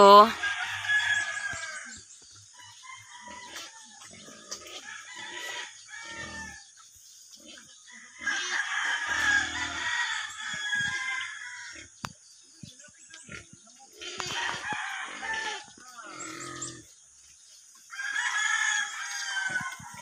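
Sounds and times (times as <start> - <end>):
rooster crowing: 0.0 - 2.0, 4.8 - 6.7, 8.1 - 11.8, 14.2 - 15.7, 17.9 - 20.0.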